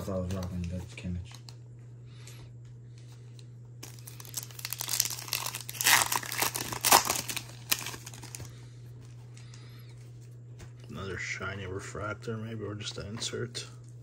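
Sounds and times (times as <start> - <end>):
plastic wrapper crinkling and tearing: 3.8 - 8.5.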